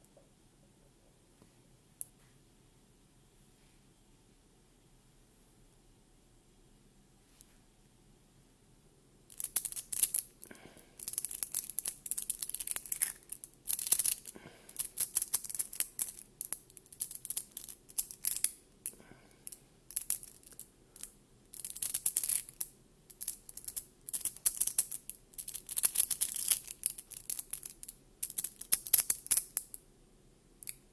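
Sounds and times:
magnetic balls clicking: 0:09.3 - 0:10.4, 0:11.0 - 0:18.6, 0:19.5 - 0:29.8.

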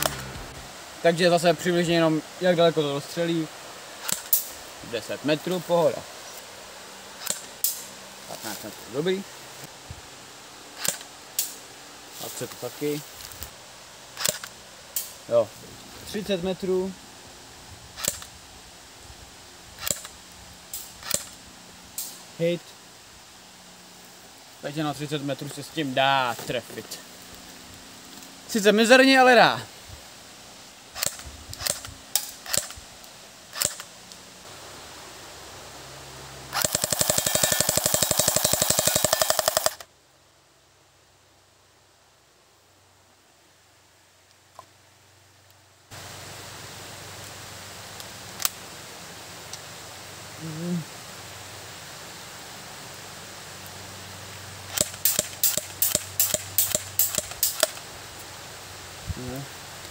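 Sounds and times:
airsoft pistol full-auto burst: 0:36.5 - 0:39.9, 0:54.7 - 0:57.8.

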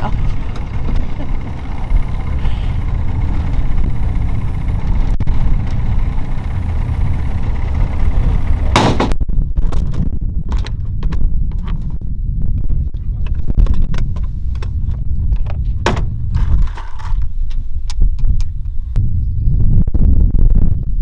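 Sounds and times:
outboard motor idling: 0:00.0 - 0:09.1
clatter: 0:12.6 - 0:18.5.

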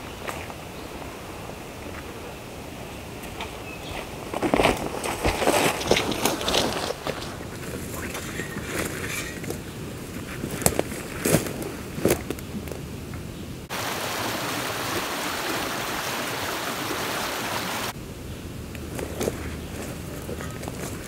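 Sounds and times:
creek rushing over rocks: 0:00.0 - 0:08.9, 0:13.6 - 0:18.0
footsteps through dry leaves: 0:18.9 - 0:21.0.

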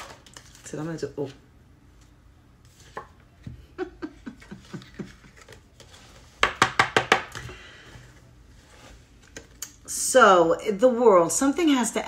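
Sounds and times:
cards being shuffled: 0:04.6 - 0:06.6.

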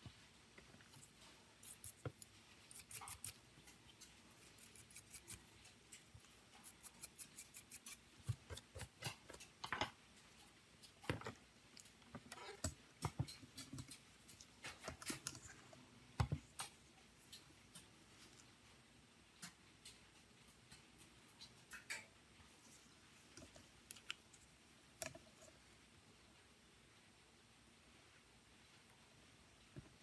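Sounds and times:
stiff brush scrubbing circuit board: 0:00.9 - 0:09.3.

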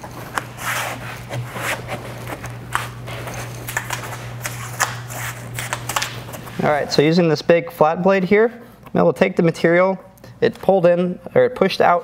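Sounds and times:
hands scuffing foam mat: 0:00.0 - 0:06.7
steady low hum: 0:00.0 - 0:12.0.

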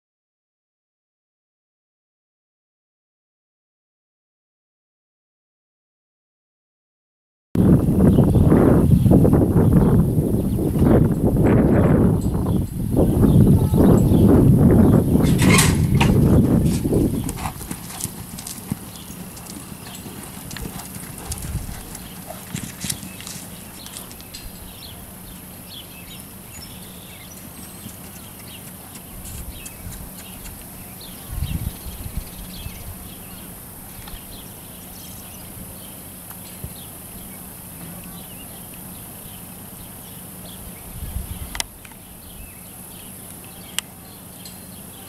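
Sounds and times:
horse hooves on dirt: 0:15.0 - 0:34.6.

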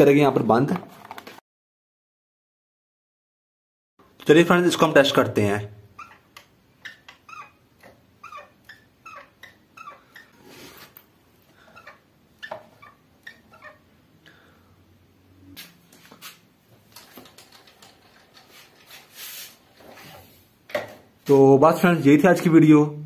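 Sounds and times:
high-pitched animal cries: 0:05.9 - 0:10.4, 0:11.6 - 0:13.9.

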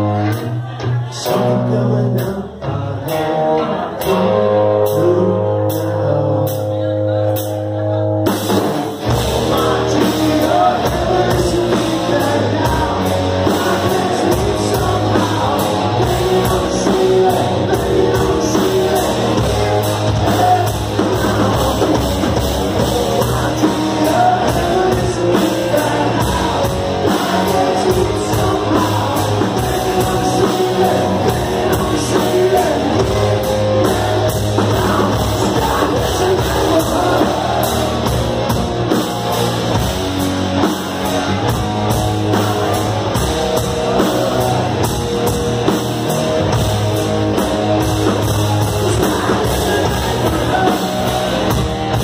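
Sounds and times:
live rock band playing: 0:00.0 - 0:52.0
women singing along: 0:09.4 - 0:38.2.

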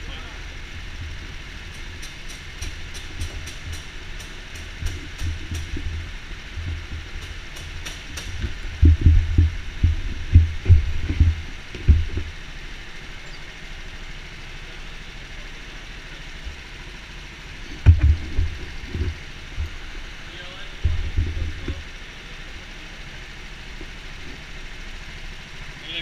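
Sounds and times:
go-karts idling: 0:00.0 - 0:26.0
heavy low thumps: 0:08.4 - 0:12.4, 0:17.7 - 0:19.9, 0:20.8 - 0:21.8.

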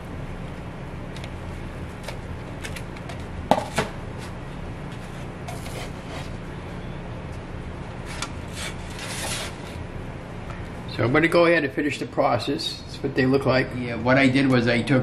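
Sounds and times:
steady low hum: 0:00.0 - 0:15.0
spatula scraping on griddle: 0:05.2 - 0:06.4, 0:08.0 - 0:09.8.

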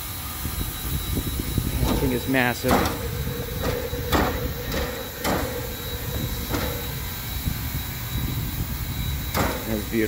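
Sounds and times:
locomotive low rumble: 0:00.2 - 0:10.0
sharp knocks: 0:01.8 - 0:07.1, 0:09.3 - 0:09.7.

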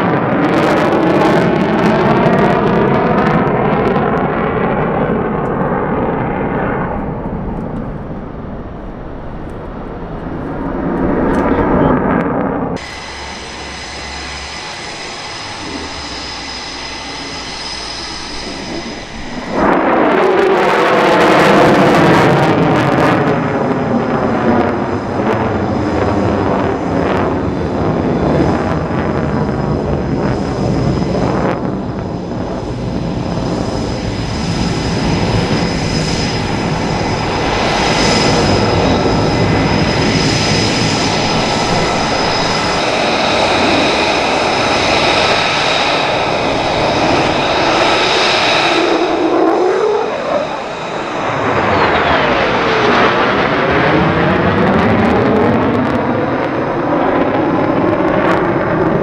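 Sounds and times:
jet engine rumble and whine: 0:00.0 - 0:59.0
sweeping rising and falling tones: 0:08.1 - 0:21.6, 0:45.6 - 0:53.6.

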